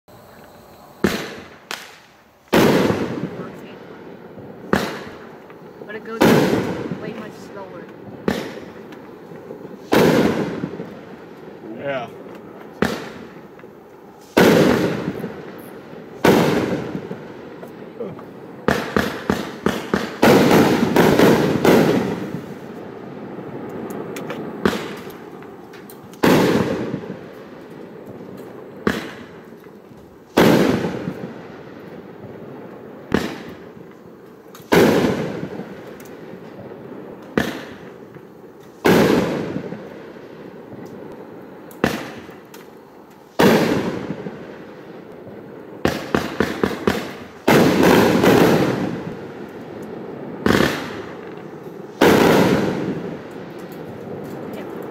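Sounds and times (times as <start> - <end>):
firework launch reports: 0.1 - 13.6, 14.2 - 29.5.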